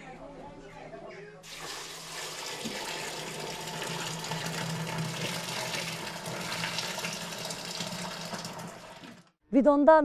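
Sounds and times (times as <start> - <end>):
liquid pouring into a drum: 1.5 - 9.4.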